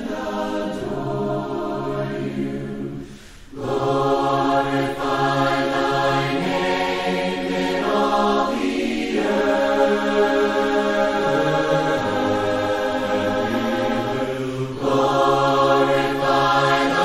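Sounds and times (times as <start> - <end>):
voices singing a hymn: 0.0 - 17.0
breath: 3.0 - 3.6, 14.4 - 14.8.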